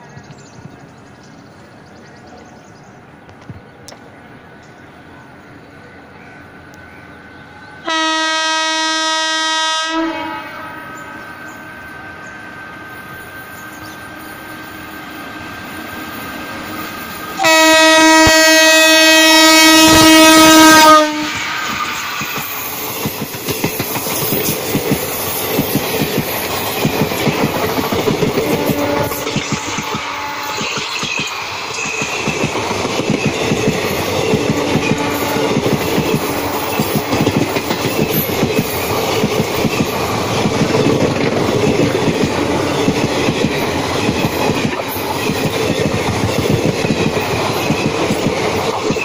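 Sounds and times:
locomotive horn blasts: 7.8s - 13.6s, 17.4s - 22.0s, 28.5s - 30.8s
train wheels clattering over rail joints: 21.6s - 49.0s.

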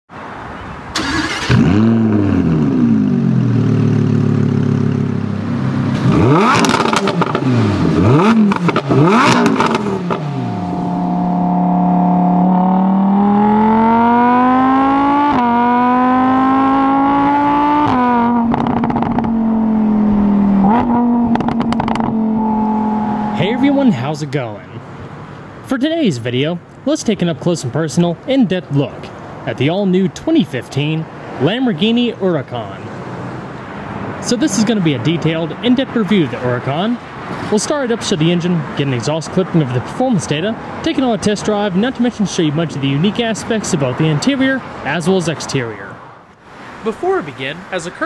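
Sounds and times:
sports car engine revving: 1.0s - 24.0s.

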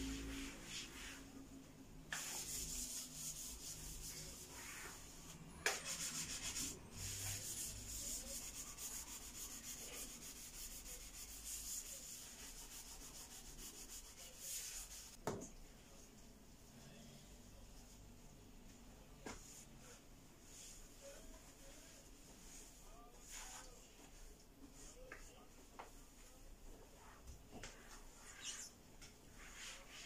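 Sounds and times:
cloth scrubbing hard surface: 0.0s - 1.4s, 2.1s - 15.2s.

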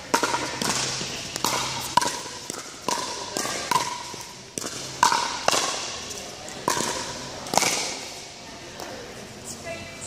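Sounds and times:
ball bouncing on court: 0.0s - 8.2s
paddles striking plastic ball: 0.1s - 5.9s.

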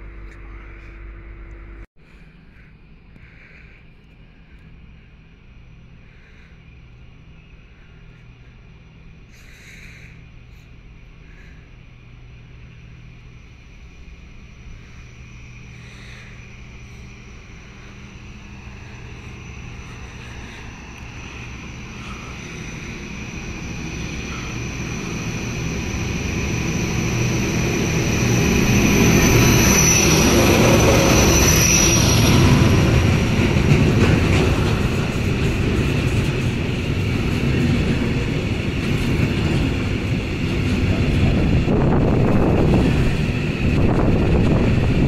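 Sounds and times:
freight train rumbling: 0.0s - 45.0s
high-pitched wheel squeal: 17.9s - 36.2s.

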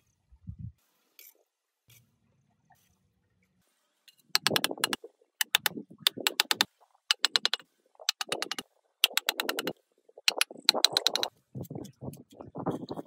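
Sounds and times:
hard objects clicking together: 4.4s - 12.4s.

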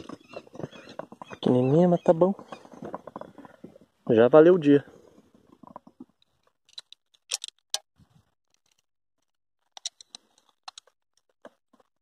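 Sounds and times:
fishing gear clicking and rattling: 5.5s - 11.9s.

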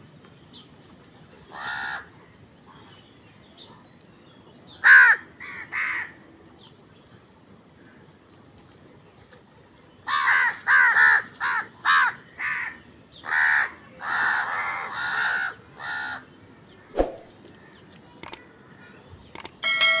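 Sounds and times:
crows cawing: 1.5s - 2.1s, 4.8s - 6.2s, 10.1s - 16.2s
electronic chime: 19.6s - 20.0s.

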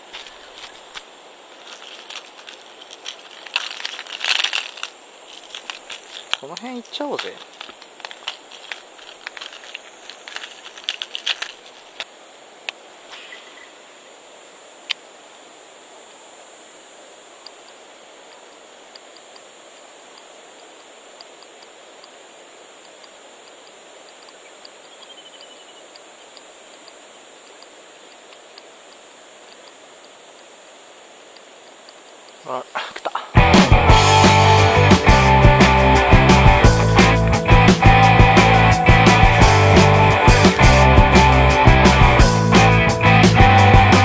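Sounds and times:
soft even hiss: 0.0s - 33.4s
lures rattling in plastic box: 1.6s - 6.5s, 7.1s - 12.0s.

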